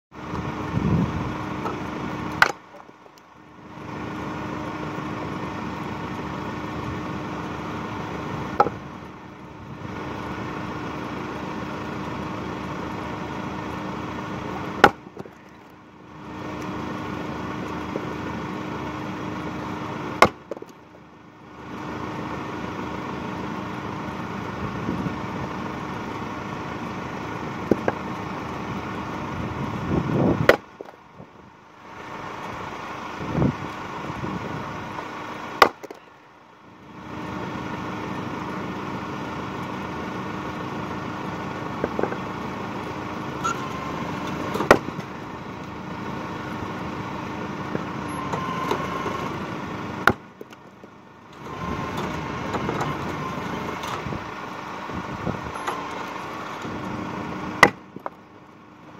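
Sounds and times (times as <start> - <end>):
axe splitting firewood: 1.6 - 3.3, 8.3 - 8.9, 14.4 - 15.8, 19.9 - 21.0, 27.6 - 28.1, 30.4 - 31.0, 35.5 - 36.1, 41.7 - 42.3, 43.4 - 45.2, 48.2 - 54.1, 57.5 - 58.2.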